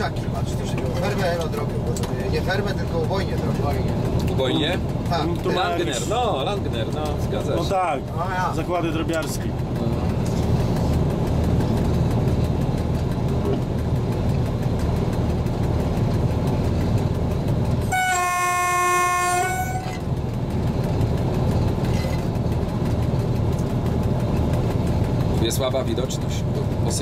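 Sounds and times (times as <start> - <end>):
diesel locomotive running: 0.0 - 27.0
locomotive horn blast: 17.8 - 20.2.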